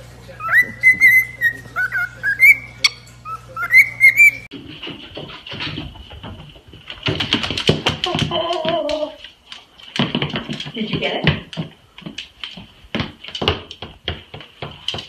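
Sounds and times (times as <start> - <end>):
cockatiel whistling: 0.4 - 4.5.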